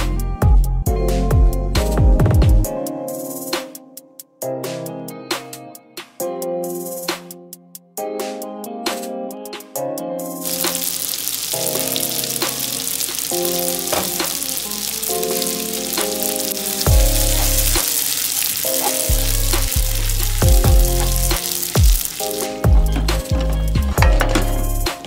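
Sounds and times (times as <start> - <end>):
background music with bass: 0.0 - 3.9, 13.4 - 18.0, 19.0 - 25.0
spatula tossing pasta: 10.4 - 22.7
spaghetti sizzling in pan: 10.4 - 24.8.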